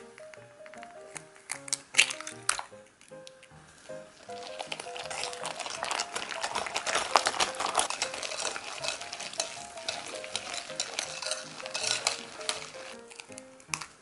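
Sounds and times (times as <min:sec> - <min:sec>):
whisk clicking against glass bowl: 0:04.6 - 0:13.4.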